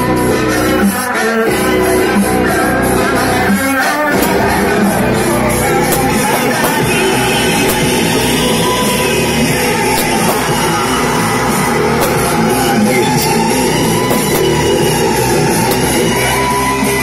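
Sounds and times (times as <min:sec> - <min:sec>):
rock music with singing: 0:00.0 - 0:17.0.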